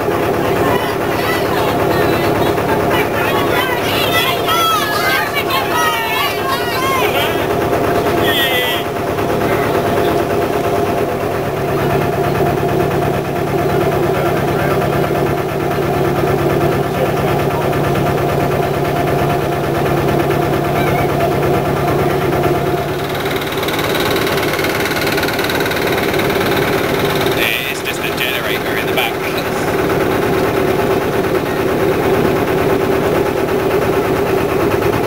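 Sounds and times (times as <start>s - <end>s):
boat engine running: 0.0s - 35.0s.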